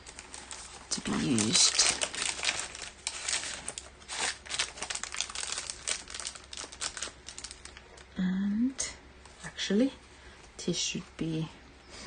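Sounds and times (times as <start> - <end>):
paper rustling and crinkling: 0.0 - 8.0.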